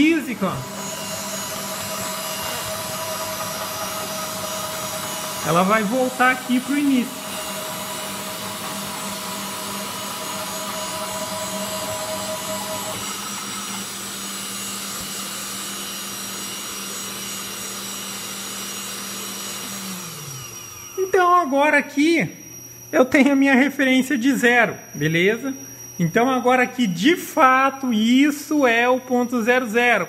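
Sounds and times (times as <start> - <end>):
stepper motors whining: 0.0 - 17.6, 18.2 - 21.2.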